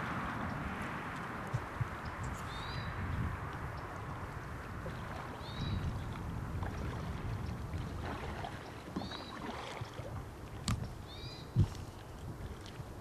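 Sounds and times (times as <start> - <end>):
wind on microphone: 0.0 - 13.0
bird chirping: 2.0 - 3.0, 9.0 - 9.4, 11.1 - 11.5.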